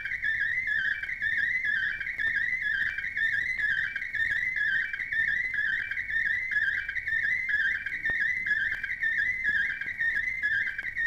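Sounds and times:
warbling radio fax tone: 0:00.0 - 0:11.0.

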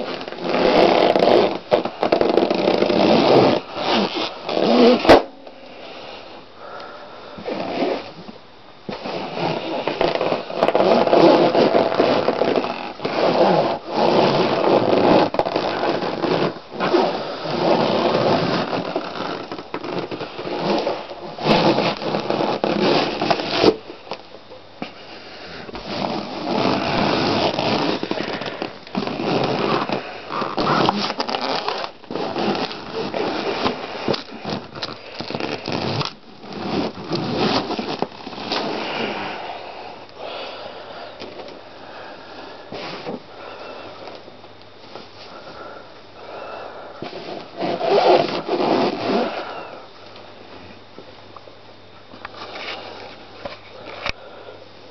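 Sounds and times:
balloons squeaking under foot: 0:00.0 - 0:05.3, 0:07.4 - 0:08.1, 0:08.9 - 0:23.8, 0:25.7 - 0:39.2, 0:47.0 - 0:49.6.

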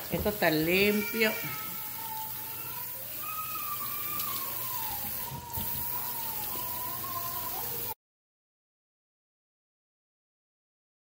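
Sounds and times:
hand rubbing potatoes splashing: 0:00.0 - 0:07.9
tap water rushing into sink: 0:00.0 - 0:07.9.

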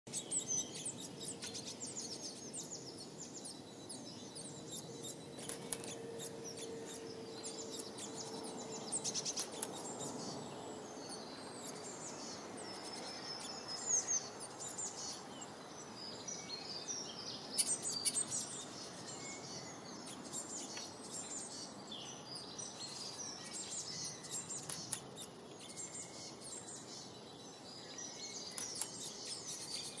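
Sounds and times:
low background noise: 0:00.1 - 0:30.0
songbirds chirping and singing: 0:00.1 - 0:30.0.

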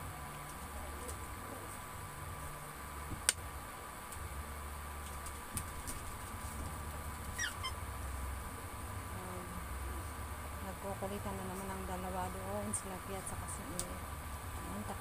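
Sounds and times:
induction cooktop hum: 0:06.3 - 0:15.0.

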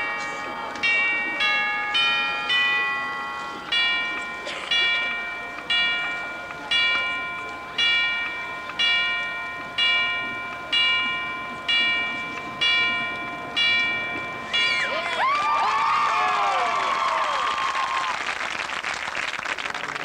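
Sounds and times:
chimes tolling: 0:00.0 - 0:15.2.

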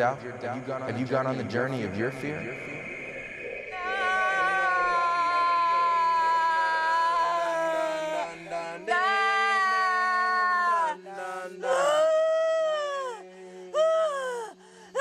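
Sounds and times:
low drone: 0:00.0 - 0:08.8
person singing chant notes: 0:07.2 - 0:15.0.

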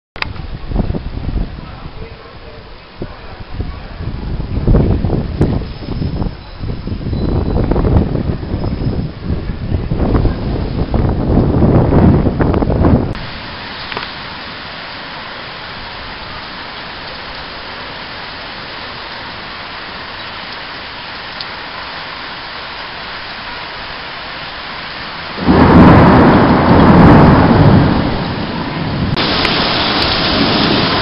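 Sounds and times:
steady rain hiss: 0:00.2 - 0:31.0
low rumble of thunder: 0:00.4 - 0:13.4, 0:25.2 - 0:31.0.

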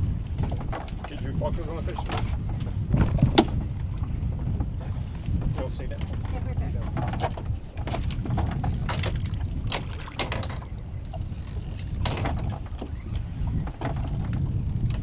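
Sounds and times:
fishing rods and reels clicking: 0:07.8 - 0:15.0.

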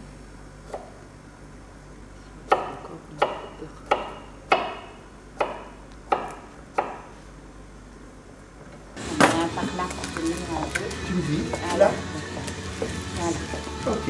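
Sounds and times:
knife chopping on wooden board: 0:02.5 - 0:07.1.

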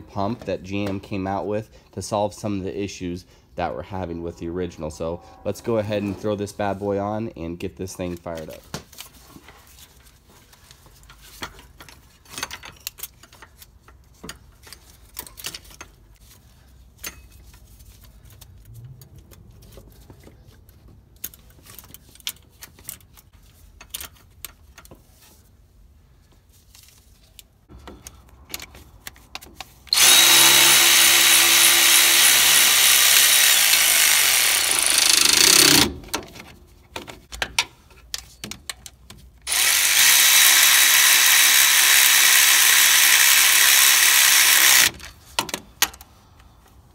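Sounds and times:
cordless power tool running: 0:29.9 - 0:36.0, 0:39.5 - 0:45.0.

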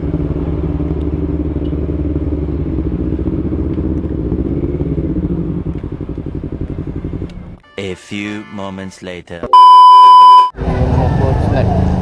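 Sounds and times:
motorcycle engine at low revs: 0:00.0 - 0:07.6.

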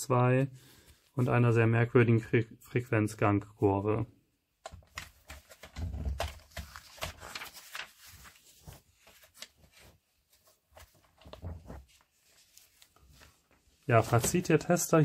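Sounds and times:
magazine pages rustling: 0:04.7 - 0:15.0.

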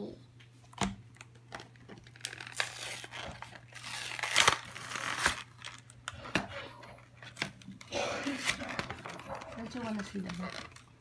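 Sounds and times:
plastic crinkling: 0:01.1 - 0:06.4, 0:07.1 - 0:11.0
cardboard tearing: 0:02.0 - 0:05.9, 0:08.2 - 0:10.9.

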